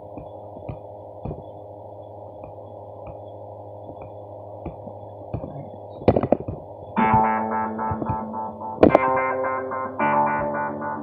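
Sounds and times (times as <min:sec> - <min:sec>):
steady low hum: 0:00.0 - 0:11.0
trackpad clicks: 0:05.4 - 0:09.0.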